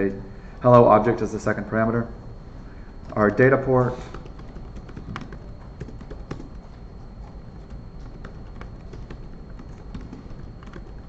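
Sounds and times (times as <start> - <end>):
keyboard typing: 3.0 - 11.0.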